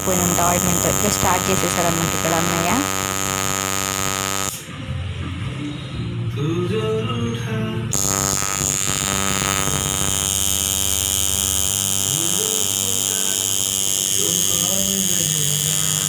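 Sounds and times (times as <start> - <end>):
tattoo machine buzzing: 0.0 - 4.6, 7.9 - 16.0.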